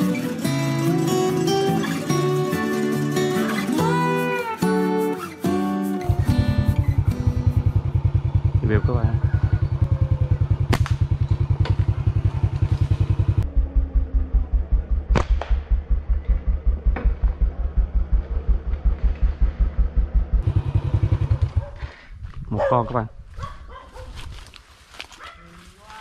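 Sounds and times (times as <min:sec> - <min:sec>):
small motorcycle engine: 0:06.1 - 0:13.4, 0:20.4 - 0:22.0.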